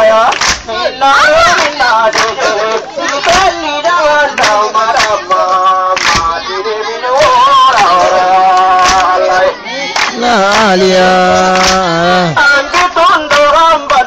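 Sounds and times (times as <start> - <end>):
man singing through megaphone: 0.0 - 14.0.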